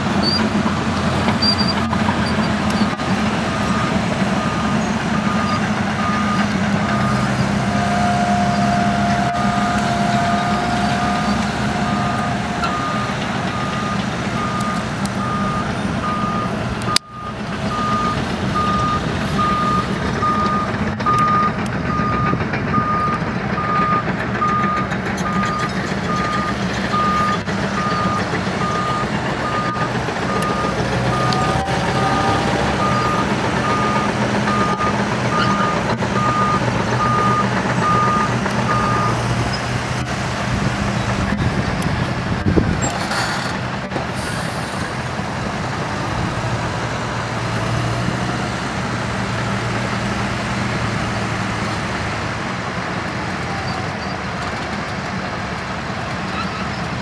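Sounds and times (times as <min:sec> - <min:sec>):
heavy diesel machinery drone: 0:00.0 - 0:57.0
reversing alarm beeps: 0:08.0 - 0:39.2.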